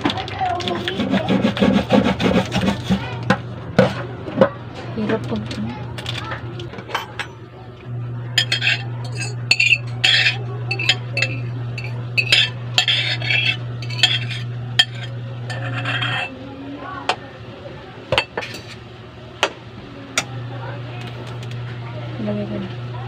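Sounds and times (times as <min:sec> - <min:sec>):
steady low hum: 0:00.7 - 0:23.0
metal spoon scraping a bowl: 0:00.8 - 0:03.1, 0:08.4 - 0:16.3.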